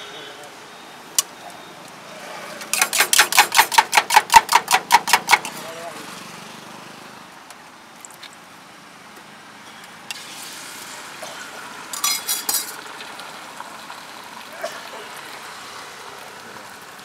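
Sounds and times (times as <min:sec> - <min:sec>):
egg sizzling in a pan: 0:10.1 - 0:17.0
spoon clinking on steel: 0:12.0 - 0:12.8.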